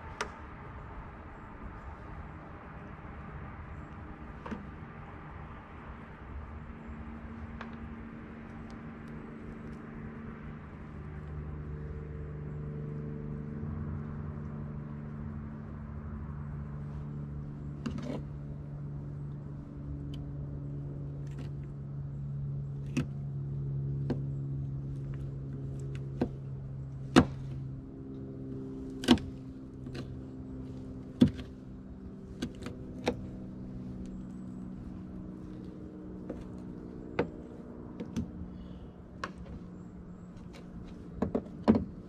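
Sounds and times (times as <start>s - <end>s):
low mechanical hum: 0.0s - 42.0s
knife striking tailgate: 29.0s - 30.1s.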